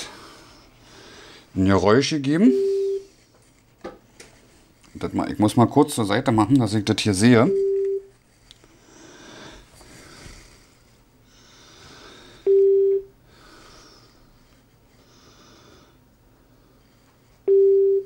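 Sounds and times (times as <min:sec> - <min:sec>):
soft breathing: 0:00.0 - 0:01.6, 0:08.5 - 0:12.5, 0:13.2 - 0:17.4
speaker beep: 0:02.4 - 0:03.1.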